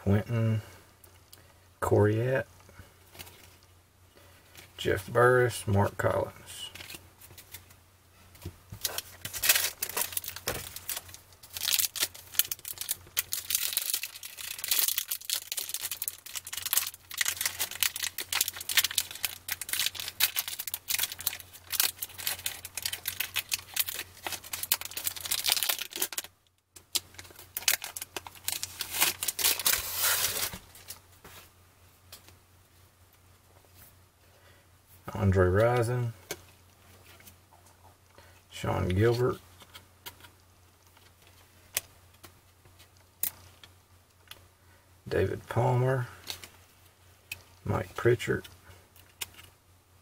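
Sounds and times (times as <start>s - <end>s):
foil wrapper tearing and crinkling: 8.8s - 26.3s, 26.9s - 30.9s.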